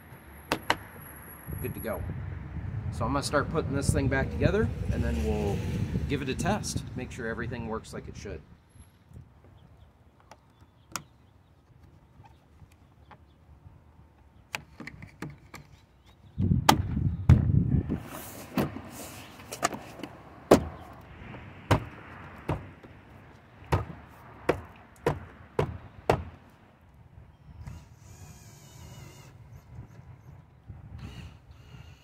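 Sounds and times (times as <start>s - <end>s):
cordless drill whirring: 27.5s - 29.4s, 31.0s - 32.0s.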